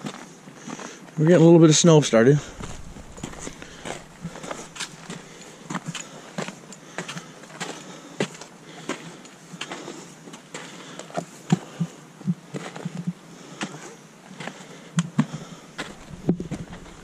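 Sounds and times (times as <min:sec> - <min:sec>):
footsteps on icy snow: 0:02.1 - 0:05.6, 0:15.8 - 0:17.0.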